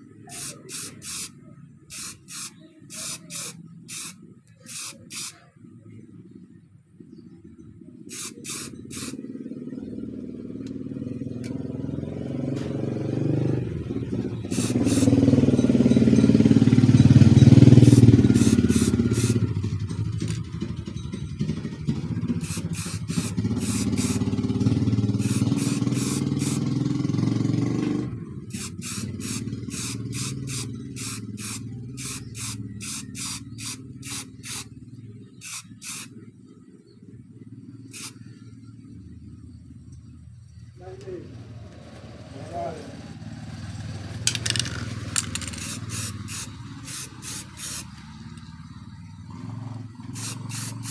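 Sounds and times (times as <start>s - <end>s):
spray can hissing: 0.3s - 1.3s, 1.9s - 5.4s, 8.1s - 9.2s, 14.5s - 15.2s, 17.8s - 19.4s, 22.4s - 24.2s, 25.2s - 26.6s, 28.5s - 34.7s, 35.4s - 36.1s, 37.9s - 38.2s, 44.3s - 48.0s, 50.1s - 50.9s
low engine hum: 5.4s - 35.4s.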